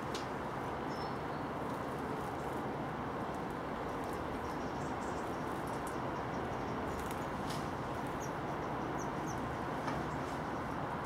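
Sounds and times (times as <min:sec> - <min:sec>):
outdoor background rush: 0:00.0 - 0:11.0.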